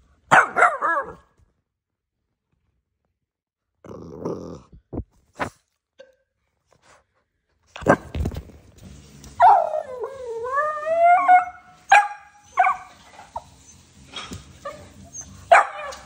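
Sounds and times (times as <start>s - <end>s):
puppy barking: 0.3s - 1.3s, 11.4s - 13.4s, 14.7s - 16.0s.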